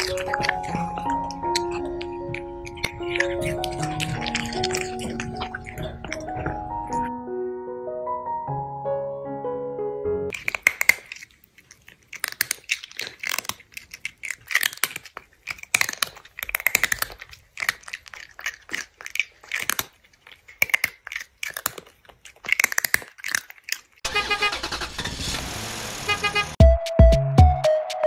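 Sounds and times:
crunchy chewing: 0.0 - 7.1, 10.3 - 24.9.

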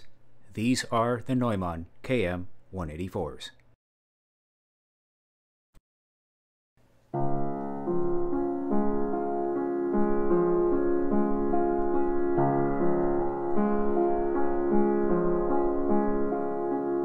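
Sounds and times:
grand piano playing chords: 7.1 - 17.0.

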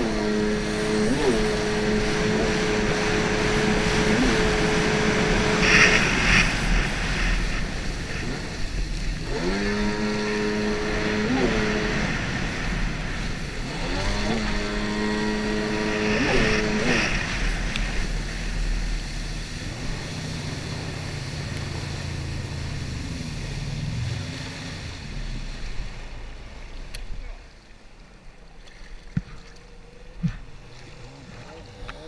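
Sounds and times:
jet ski engine: 0.0 - 32.0
water spray hissing: 0.1 - 24.7.

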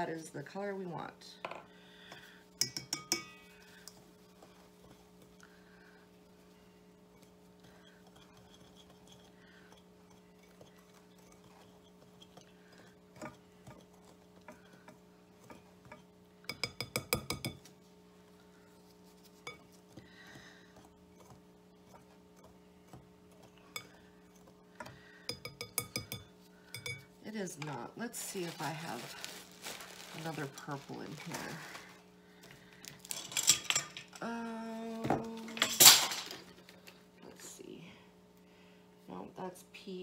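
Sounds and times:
steady low hum: 0.0 - 40.0
whisk clinking against bowl: 2.5 - 5.3, 7.6 - 17.6, 25.2 - 27.8.

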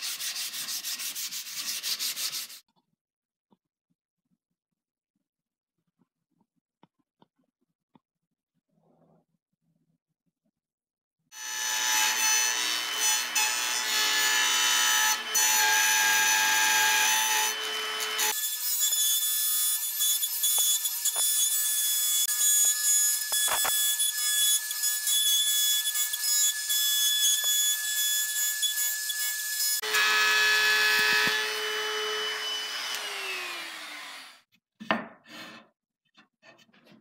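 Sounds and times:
electric router high whine: 29.8 - 34.4.

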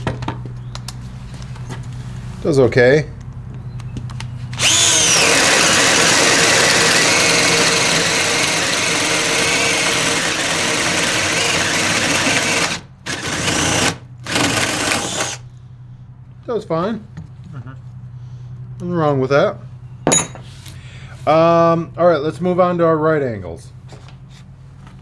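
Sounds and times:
drill boring through wood: 4.6 - 15.4.

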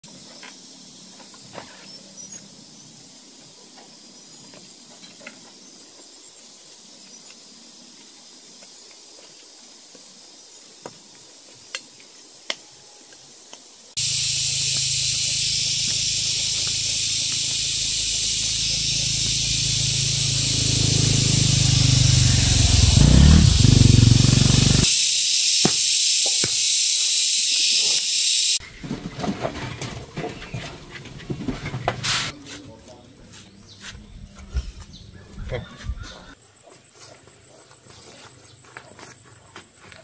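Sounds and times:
loud steady hiss: 13.3 - 28.6
low hum: 14.0 - 24.9.

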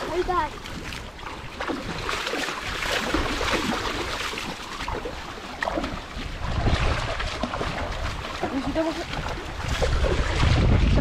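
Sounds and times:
shallow water splashing: 0.0 - 11.0
wind buffeting microphone: 0.0 - 11.0
low rumble: 9.1 - 11.0.

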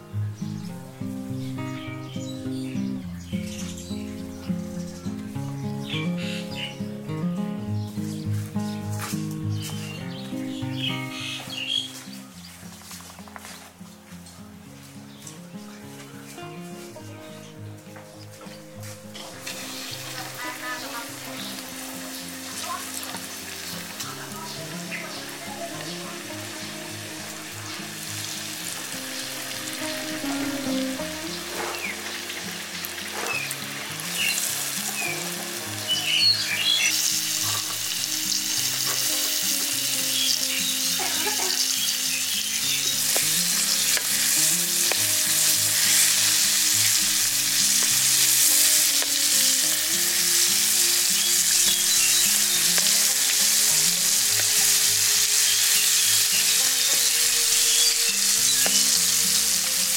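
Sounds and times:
eggs deep-frying in hot oil: 19.4 - 59.9.

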